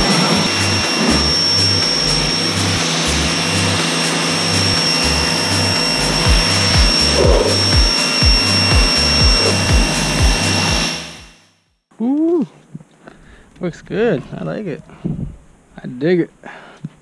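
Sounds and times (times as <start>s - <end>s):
pressure washer spraying water: 0.0s - 11.3s
music with deep bass and kick drums: 0.0s - 11.4s.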